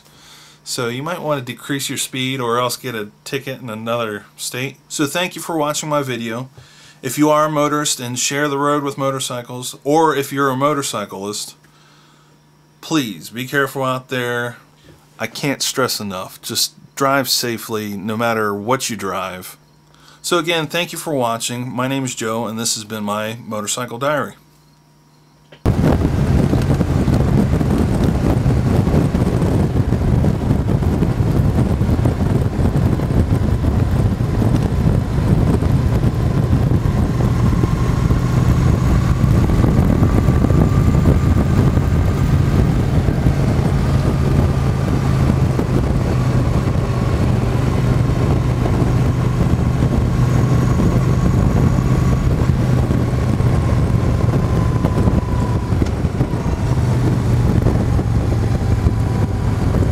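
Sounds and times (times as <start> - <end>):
motorcycle engine cruising: 25.6 - 59.9
wind rushing over microphone: 25.6 - 59.9.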